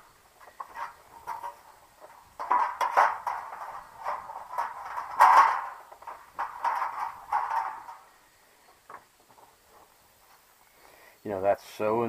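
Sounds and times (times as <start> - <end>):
sheet metal scraping and rattling: 0.0 - 8.2
sharp metal knocks: 2.3 - 8.1.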